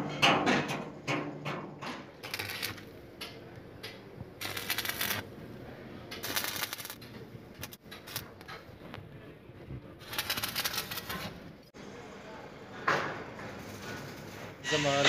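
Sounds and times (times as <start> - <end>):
welding arc crackling: 2.2 - 3.1, 4.4 - 5.4, 6.1 - 7.0, 7.6 - 8.6, 10.0 - 11.5.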